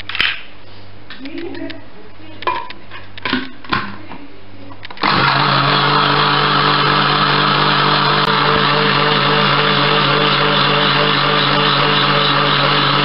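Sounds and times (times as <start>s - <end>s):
blender motor whirring: 5.0s - 13.0s.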